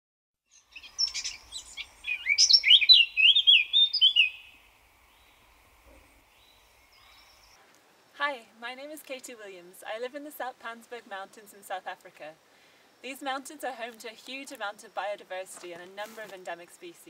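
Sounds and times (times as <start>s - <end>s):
bird chirping and warbling: 0.5s - 5.4s, 6.0s - 7.6s.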